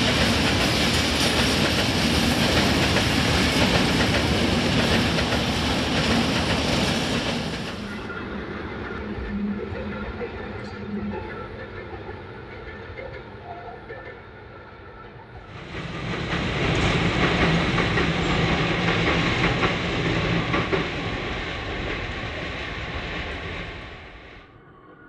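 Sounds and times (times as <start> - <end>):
train wheels clattering over rail joints: 0.0 - 8.1, 15.5 - 23.4
passenger train passing: 0.0 - 25.0.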